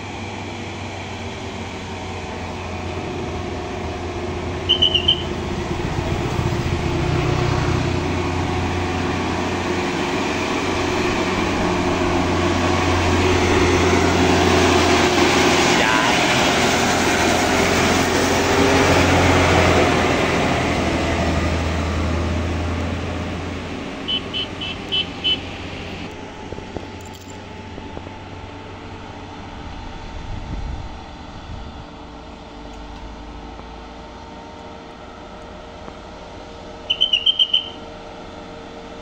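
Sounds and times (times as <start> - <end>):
diesel truck engine labouring: 0.0 - 39.0
short high whistle blasts: 4.6 - 5.4, 36.8 - 37.8.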